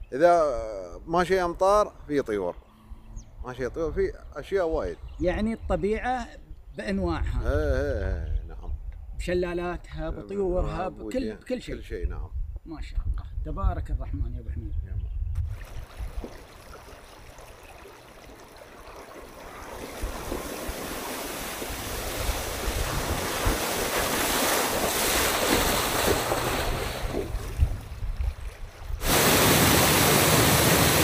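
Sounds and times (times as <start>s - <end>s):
wind on microphone: 3.2s - 10.8s, 11.7s - 16.6s, 19.5s - 31.0s
stream water rushing over stones: 15.5s - 28.4s, 29.0s - 31.0s
vehicle splashing through water: 15.6s - 31.0s
small waterfall rushing: 19.8s - 26.0s, 29.0s - 31.0s.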